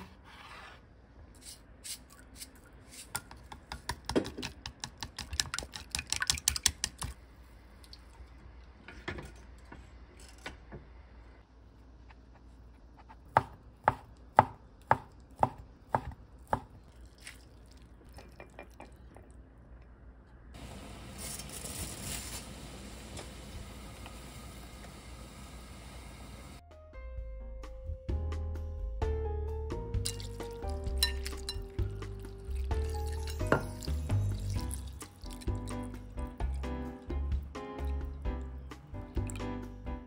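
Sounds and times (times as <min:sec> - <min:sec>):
chopsticks beating eggs in bowl: 0:02.4 - 0:07.1
water boiling: 0:20.6 - 0:26.6, 0:30.6 - 0:35.9.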